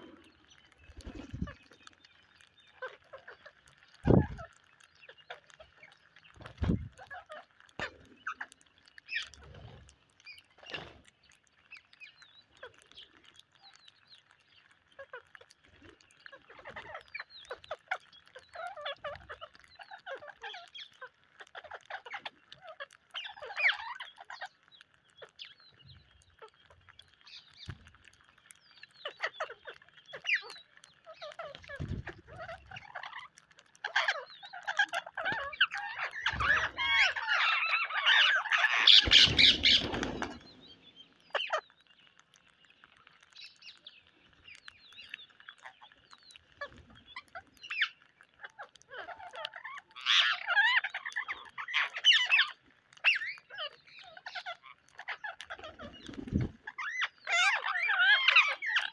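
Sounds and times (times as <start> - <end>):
parakeets chirping and squawking: 0.0 - 58.9
parakeets screeching: 0.6 - 2.0, 2.7 - 9.6, 16.2 - 25.4, 29.0 - 41.7, 44.5 - 58.9.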